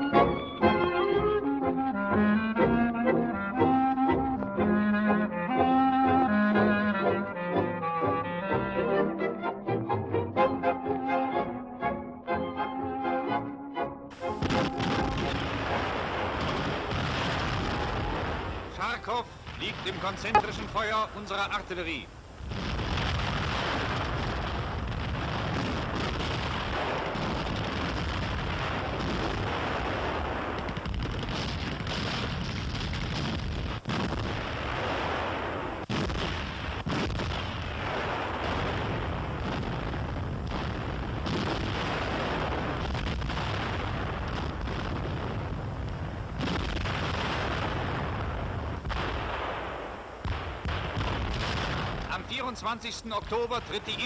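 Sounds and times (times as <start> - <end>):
shell explosions: 14.1 - 21.6, 22.5 - 54.0
heavy guns firing: 14.2 - 21.0.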